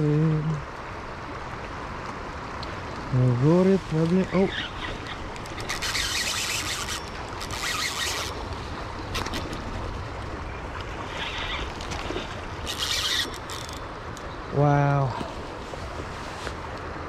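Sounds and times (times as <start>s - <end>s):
fishing reel buzzing: 4.4s - 8.4s, 12.6s - 13.9s.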